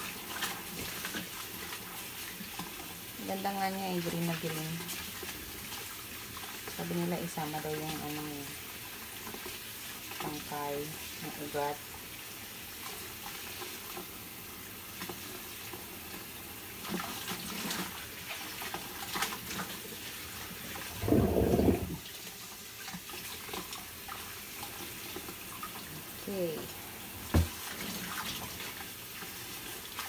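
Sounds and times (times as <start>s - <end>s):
tap water running into a sink: 0.0s - 30.0s.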